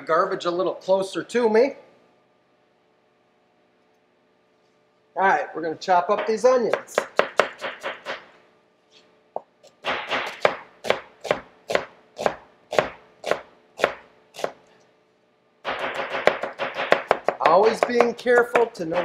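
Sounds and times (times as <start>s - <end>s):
knife chopping onion on board: 6.7s - 8.2s, 10.1s - 14.6s, 15.7s - 19.0s.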